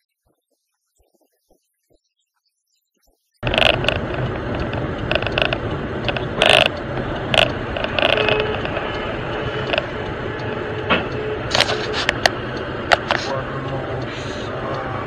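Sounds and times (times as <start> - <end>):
car road and engine noise: 3.4 - 15.0.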